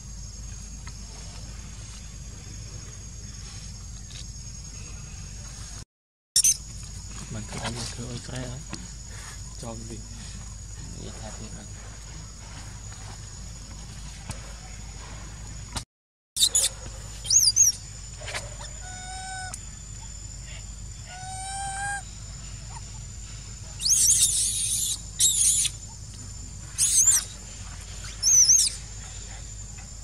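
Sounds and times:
baby monkey squealing: 0:06.4 - 0:06.6, 0:16.4 - 0:19.6, 0:21.0 - 0:22.1, 0:23.8 - 0:25.9, 0:26.7 - 0:27.4, 0:28.0 - 0:28.9
monkey low drawn-out calls: 0:16.4 - 0:29.8.

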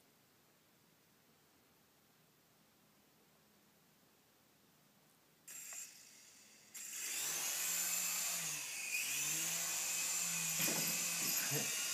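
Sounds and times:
toy helicopter rotor whirring: 0:05.5 - 0:11.9.

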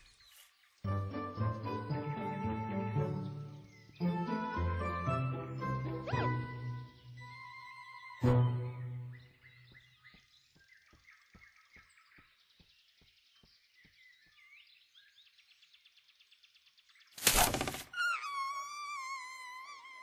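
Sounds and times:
forest ambience: 0:00.0 - 0:01.2, 0:09.0 - 0:20.0
birds chirping: 0:00.0 - 0:04.7, 0:05.4 - 0:20.0.

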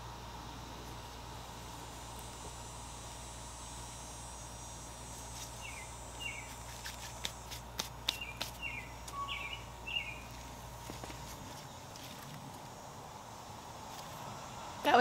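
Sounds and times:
steady low hum: 0:00.0 - 0:15.0
bird chirping: 0:05.6 - 0:06.8, 0:08.1 - 0:10.4
hands digging in soil: 0:06.4 - 0:09.2.

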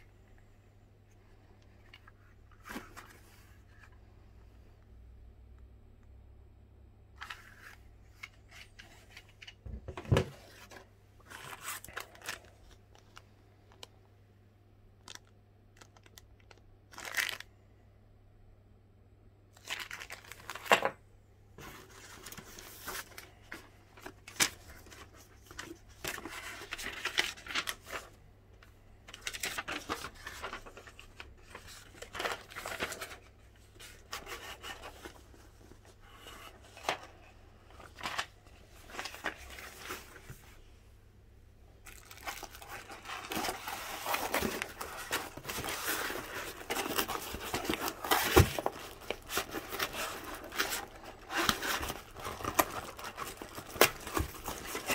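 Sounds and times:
packaging rustling and tearing: 0:11.3 - 0:13.2, 0:15.1 - 0:17.5, 0:19.6 - 0:20.9, 0:41.8 - 0:54.9.

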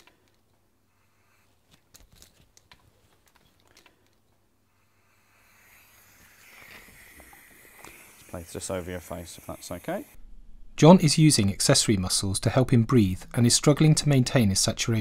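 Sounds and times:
plastic mask clicks and crinkles: 0:01.6 - 0:04.4
oxygen hissing: 0:04.7 - 0:10.2.

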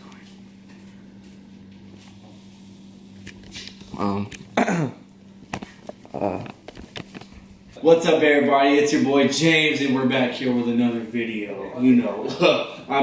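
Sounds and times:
steady low hum: 0:00.0 - 0:13.0
person making wordless sound: 0:06.0 - 0:06.7.

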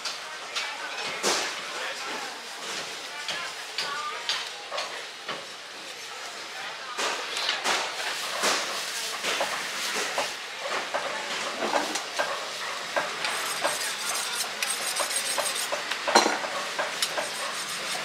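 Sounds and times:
knife scraping along bones: 0:13.2 - 0:15.8, 0:17.0 - 0:18.0.

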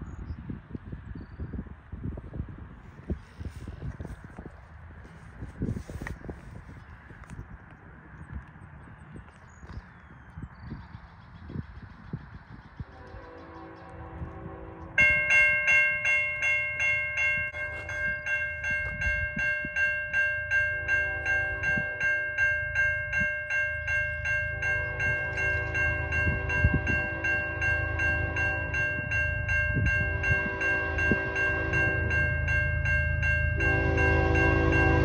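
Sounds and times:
freight train rumbling: 0:00.0 - 0:35.0
level-crossing bell ringing: 0:15.0 - 0:35.0.

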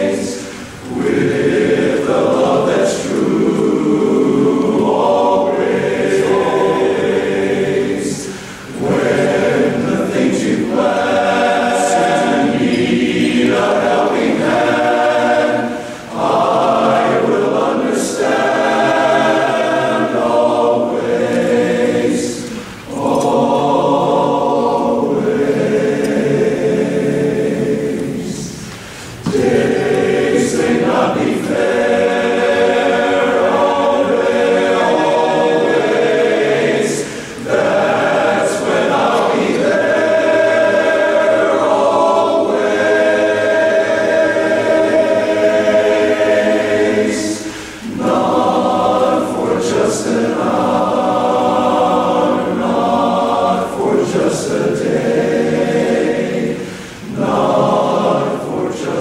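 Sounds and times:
men's chorus singing a cappella: 0:00.0 - 0:59.0.

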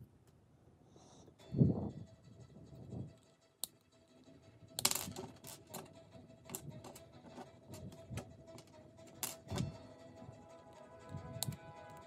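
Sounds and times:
plastic pieces clicking on desk: 0:04.8 - 0:05.9, 0:06.5 - 0:09.7.

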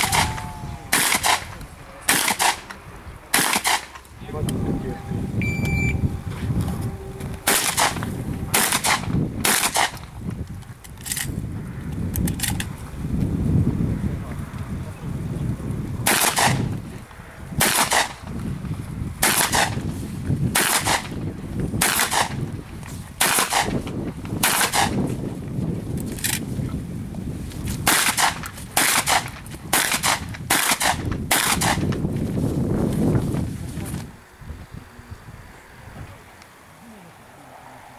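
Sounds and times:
shotgun shots: 0:00.0 - 0:04.0, 0:07.4 - 0:10.1, 0:16.0 - 0:16.7, 0:17.6 - 0:18.2, 0:19.2 - 0:19.8, 0:20.5 - 0:21.2, 0:21.8 - 0:22.4, 0:23.2 - 0:23.8, 0:24.4 - 0:25.0, 0:27.9 - 0:31.9
shot timer beep: 0:05.4 - 0:06.0.

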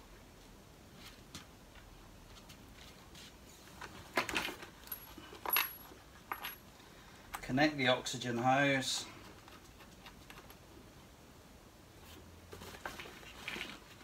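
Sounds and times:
equipment handling clicks and clatter: 0:03.7 - 0:06.7.

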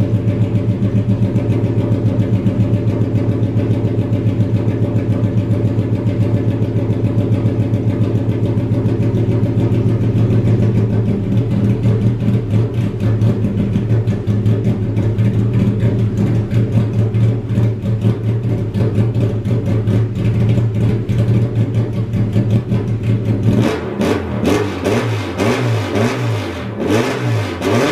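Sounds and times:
loud car engine through straight pipe: 0:00.0 - 0:27.9.

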